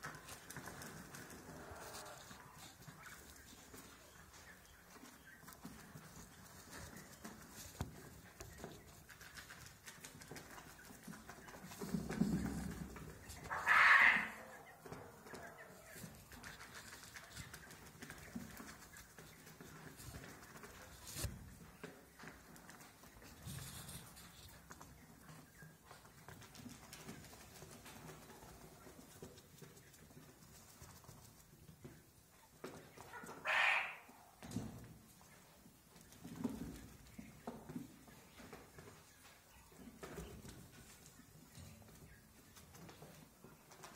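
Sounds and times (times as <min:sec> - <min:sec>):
birds scratching in straw: 0:00.0 - 0:32.0.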